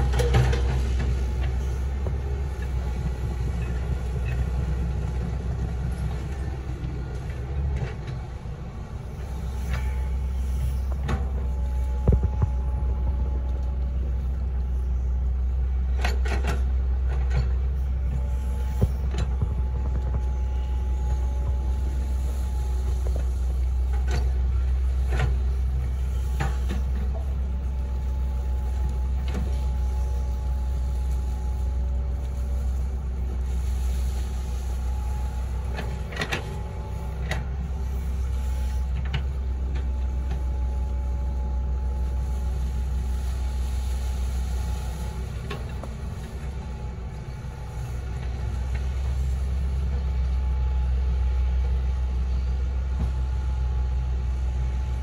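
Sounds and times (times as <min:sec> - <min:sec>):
excavator bucket clanks: 0:00.0 - 0:02.1
hydraulic whine: 0:00.0 - 0:51.3
excavator diesel engine rumbling: 0:00.0 - 0:55.0.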